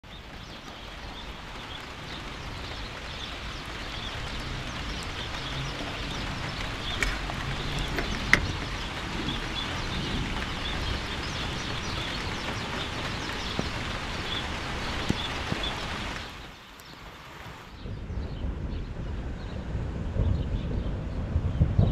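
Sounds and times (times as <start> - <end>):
bird chirping: 0.0 - 17.1
rain hissing: 0.0 - 21.9.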